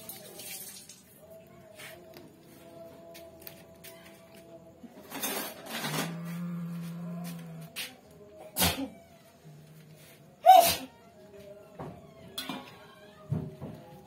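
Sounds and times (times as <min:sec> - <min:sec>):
cat sneezing: 0:08.4 - 0:09.0, 0:10.4 - 0:11.0.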